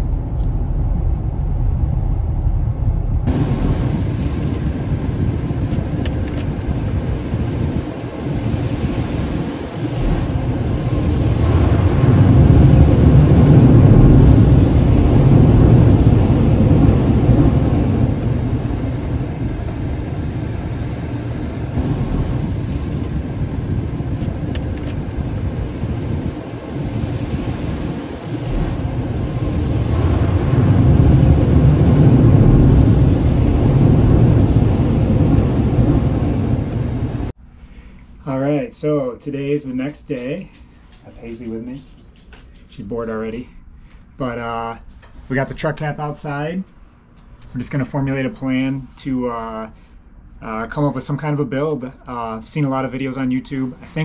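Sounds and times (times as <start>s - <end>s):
car wash water spray rushing: 3.3s - 37.3s.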